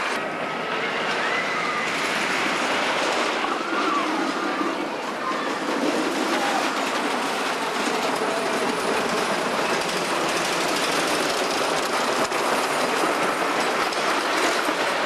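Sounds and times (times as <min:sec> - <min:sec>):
ride train clattering on track: 0:00.9 - 0:15.0.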